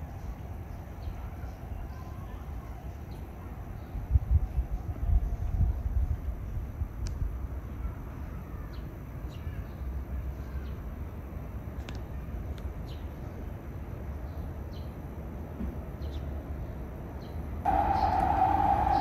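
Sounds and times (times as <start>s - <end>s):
low rumble: 17.7s - 19.0s.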